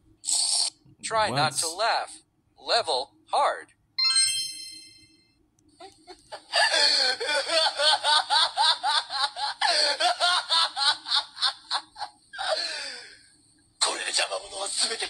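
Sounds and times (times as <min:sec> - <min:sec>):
man laughing evilly: 0:05.8 - 0:13.0.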